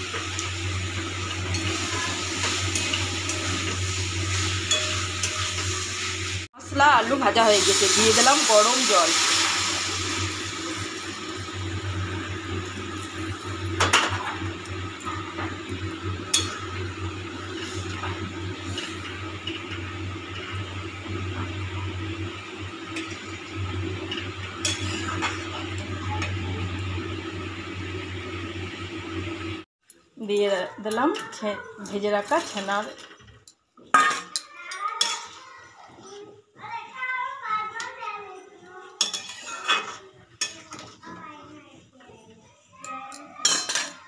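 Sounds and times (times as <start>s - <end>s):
spatula clinking against pan: 4.7s - 5.4s, 39.0s - 40.9s.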